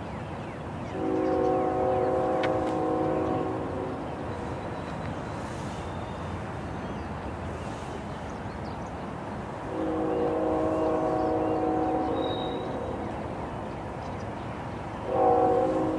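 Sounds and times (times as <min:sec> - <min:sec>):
diesel locomotive rumbling: 0:00.6 - 0:15.9
locomotive air horn blast: 0:01.0 - 0:04.5, 0:09.7 - 0:13.1, 0:15.0 - 0:15.9.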